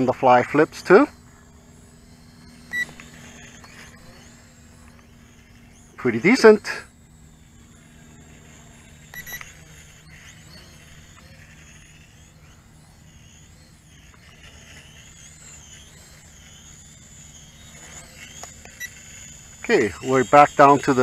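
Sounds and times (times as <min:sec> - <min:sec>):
quadcopter propellers whining: 0:00.0 - 0:21.0
radio transmitter short beep: 0:02.0 - 0:21.0.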